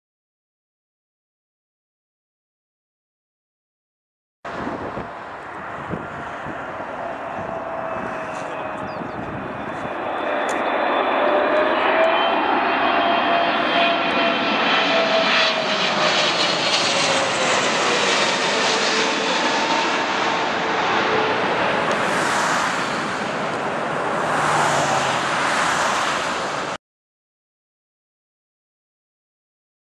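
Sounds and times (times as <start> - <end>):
jet engines passing overhead: 4.5 - 26.8.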